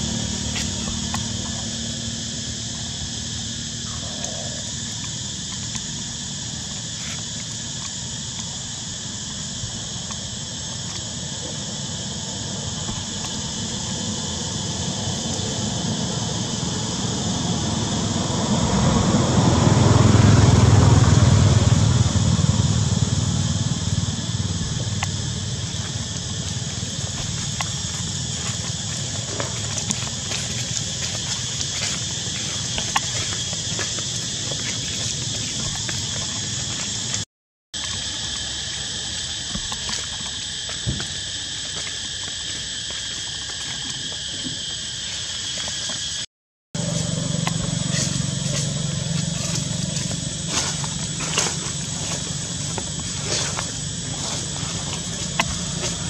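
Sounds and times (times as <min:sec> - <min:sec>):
vehicle passing on road: 0:13.9 - 0:37.1, 0:46.8 - 0:56.0.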